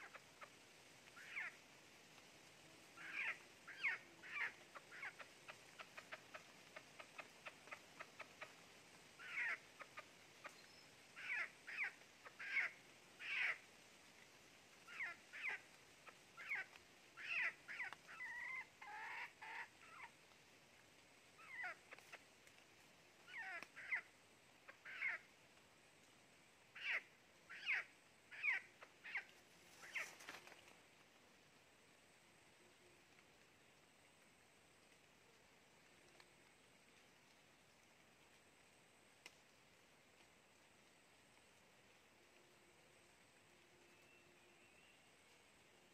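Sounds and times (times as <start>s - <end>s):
bird mewing calls: 0.0s - 1.6s, 2.9s - 8.6s, 9.2s - 13.6s, 14.8s - 20.2s, 21.4s - 22.3s, 23.2s - 25.3s, 26.8s - 30.5s.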